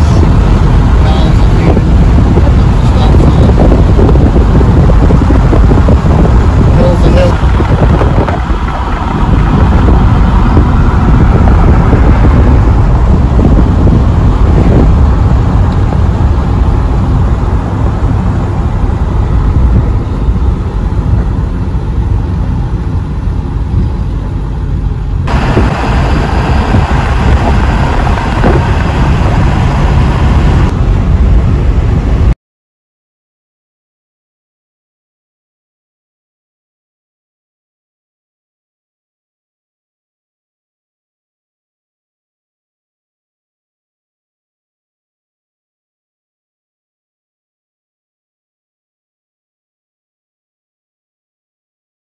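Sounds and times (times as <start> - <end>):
road and engine noise inside vehicle: 0.0 - 32.4.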